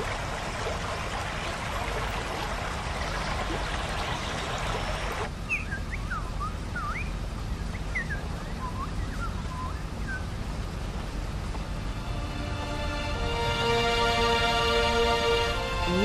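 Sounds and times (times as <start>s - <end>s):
running stream water: 0.0s - 16.0s
birds chirping: 2.0s - 12.0s.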